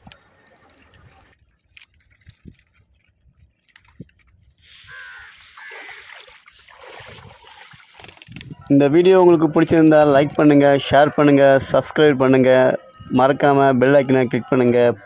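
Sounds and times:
water splashing against boat hull: 0.0s - 8.7s.

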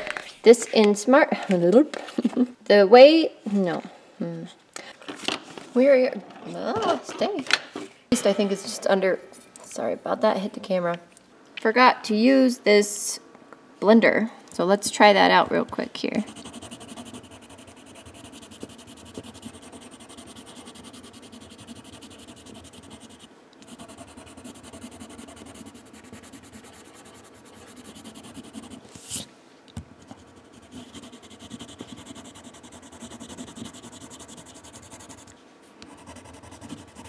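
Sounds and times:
pencil rubbing on paper: 16.2s - 29.3s, 30.2s - 35.3s, 35.9s - 37.0s.

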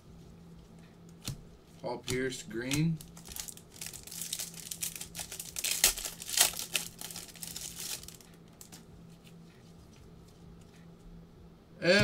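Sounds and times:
foil wrapper crinkling: 2.1s - 8.8s.

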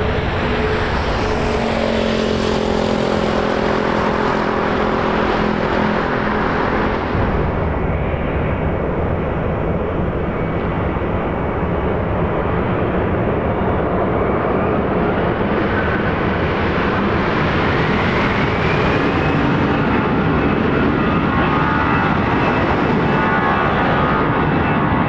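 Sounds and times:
airliner engines rushing noise: 0.0s - 25.0s
jet engine whine: 0.0s - 25.0s.

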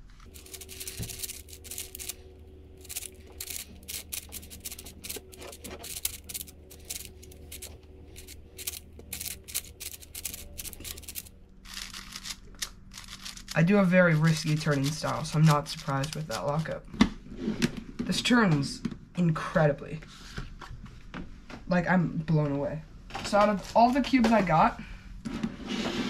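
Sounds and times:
steady low hum: 0.0s - 25.3s
plastic puzzle cube clicking: 0.3s - 2.2s, 2.8s - 13.6s.

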